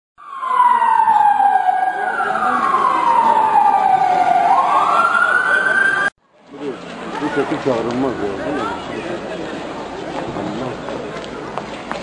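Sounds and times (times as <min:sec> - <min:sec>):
siren wailing: 0:00.2 - 0:06.1.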